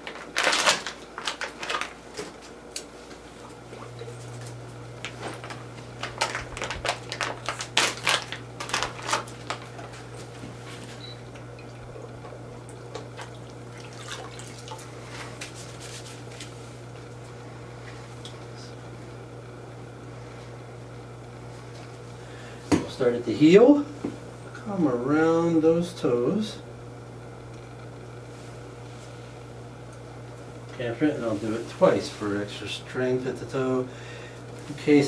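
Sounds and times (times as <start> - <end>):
foil pouch tearing and crinkling: 0.0 - 2.1, 5.3 - 9.9
water dripping and splashing: 12.7 - 14.9.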